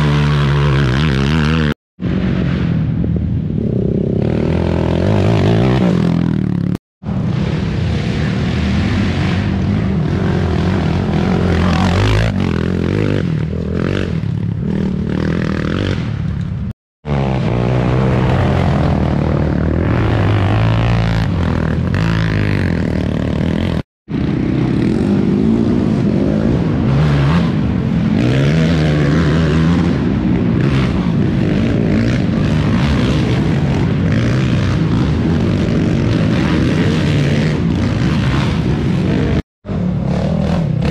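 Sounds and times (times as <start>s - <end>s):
quad engines revving: 0.0s - 2.2s, 3.6s - 6.8s, 7.4s - 16.2s, 17.1s - 40.9s.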